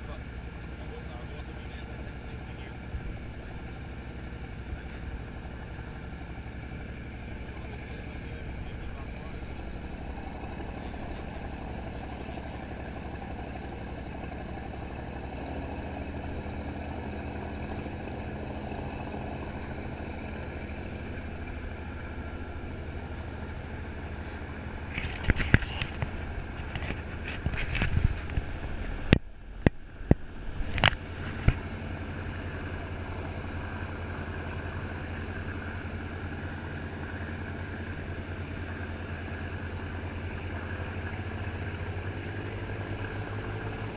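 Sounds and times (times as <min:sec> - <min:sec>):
powerboat engine humming: 0:00.0 - 0:43.9
sharp knocks and crackles: 0:24.8 - 0:31.8.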